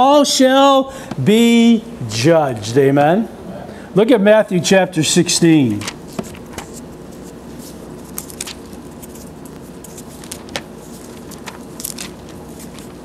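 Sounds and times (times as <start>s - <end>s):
room hum: 0.0s - 13.0s
thin pages turning: 5.7s - 13.0s.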